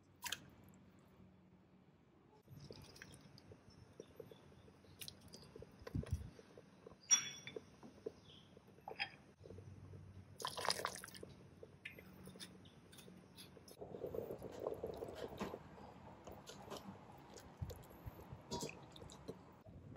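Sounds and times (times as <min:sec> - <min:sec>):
light clicks and drips: 0:02.4 - 0:15.6
sharp ringing clink: 0:07.1 - 0:07.6.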